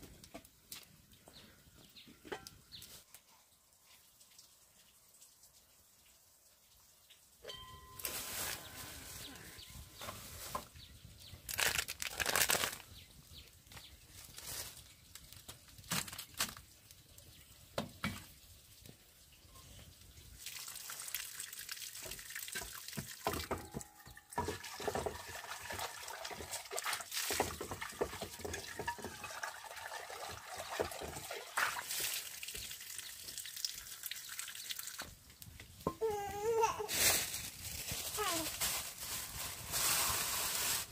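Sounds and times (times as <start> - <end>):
water running and splashing: 13.7 - 35.6
knocks and clatter of objects: 22.1 - 26.6, 27.2 - 29.4.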